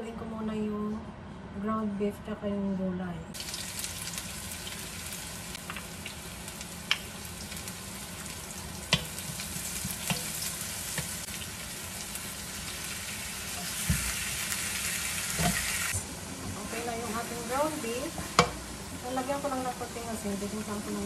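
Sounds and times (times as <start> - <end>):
food sizzling in hot oil: 3.4 - 21.0.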